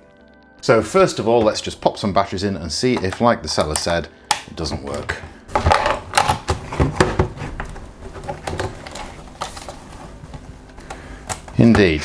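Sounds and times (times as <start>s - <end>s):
batteries clicking into compartment: 2.9s - 6.7s
plastic case handling: 2.9s - 12.0s.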